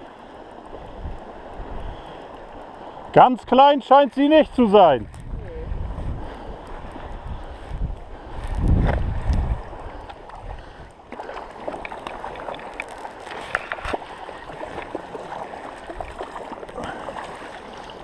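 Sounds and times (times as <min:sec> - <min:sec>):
shallow water sloshing: 0:04.8 - 0:18.0
small splashes and clicks: 0:06.6 - 0:18.0.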